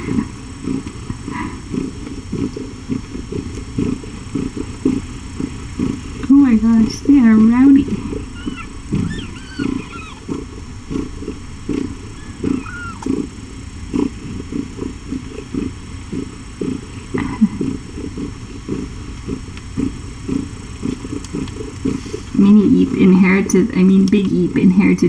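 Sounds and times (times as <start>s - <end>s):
cat purring: 0.0s - 25.0s
kitten squeaks: 8.3s - 10.4s, 12.2s - 13.2s.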